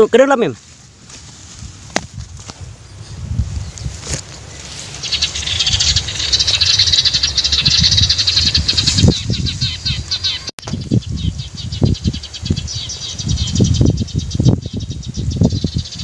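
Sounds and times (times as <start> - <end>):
small birds chirping: 1.9 - 16.0.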